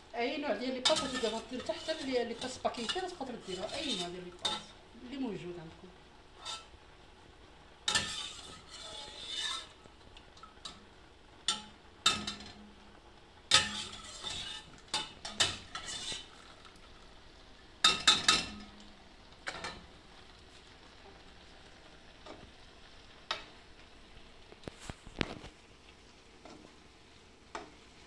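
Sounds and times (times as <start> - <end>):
spoon scraping inside metal pot: 0.9 - 4.7, 6.4 - 6.7, 7.9 - 9.8, 13.5 - 16.4.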